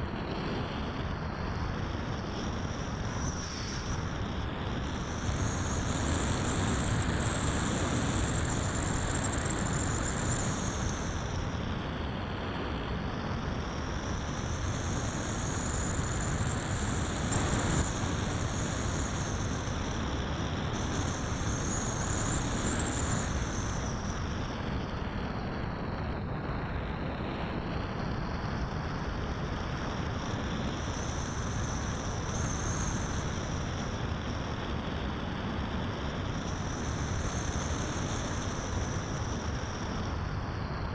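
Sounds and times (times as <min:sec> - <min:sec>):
electric motor and propeller whine: 0:00.0 - 0:40.9.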